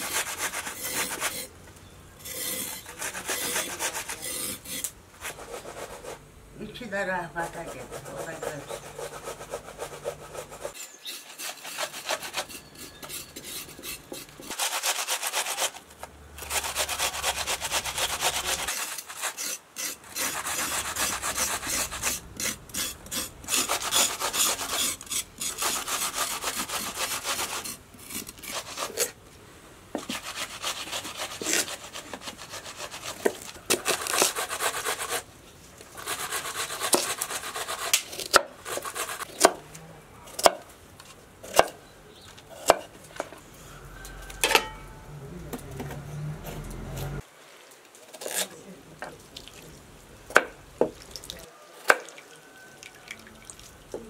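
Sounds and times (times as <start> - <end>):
knife scraping carrots: 0.0 - 1.5, 2.2 - 6.2, 7.4 - 29.2, 30.0 - 35.2, 36.0 - 39.5
vegetables rasped on a grater: 7.5 - 29.2, 30.0 - 35.2.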